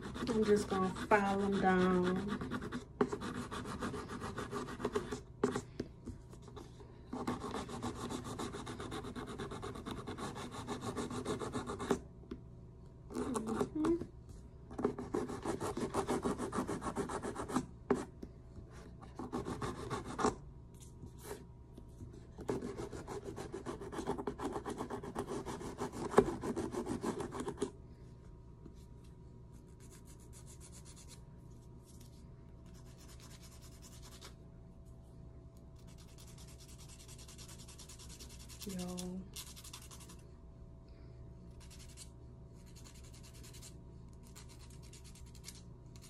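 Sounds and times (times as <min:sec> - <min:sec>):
nail file rasping on nails: 0:00.0 - 0:05.2, 0:07.2 - 0:12.0, 0:14.9 - 0:17.6, 0:19.2 - 0:20.4, 0:22.5 - 0:27.7, 0:32.7 - 0:34.3, 0:35.8 - 0:40.2, 0:41.6 - 0:46.0.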